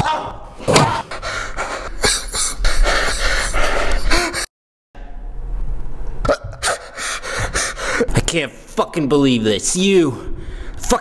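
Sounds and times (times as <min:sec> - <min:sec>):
man gasping and crying out: 0:00.0 - 0:04.5.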